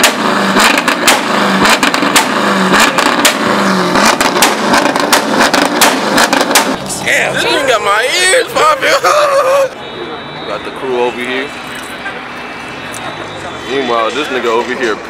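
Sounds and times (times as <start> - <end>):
exhaust pops and bangs: 0.0 - 6.9
car engine revving: 0.0 - 10.7.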